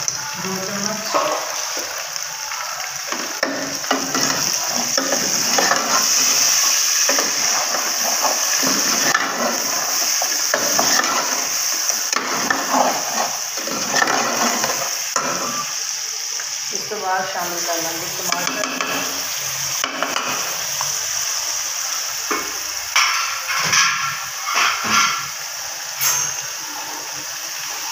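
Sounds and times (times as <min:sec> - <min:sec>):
chicken sizzling in oil: 0:00.0 - 0:27.9
ladle scraping metal pot: 0:03.1 - 0:15.6.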